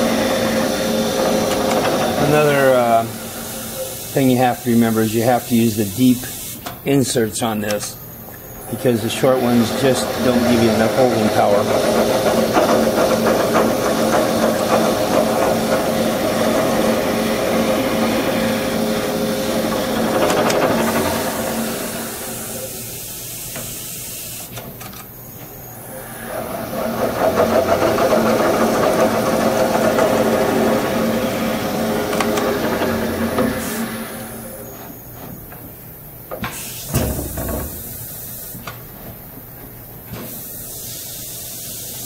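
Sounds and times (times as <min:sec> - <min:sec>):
spindle motor drilling metal: 0:00.0 - 0:04.2, 0:08.5 - 0:23.0, 0:25.9 - 0:35.0
high hiss: 0:02.3 - 0:11.6, 0:20.7 - 0:24.6, 0:36.4 - 0:38.8, 0:40.2 - 0:42.0.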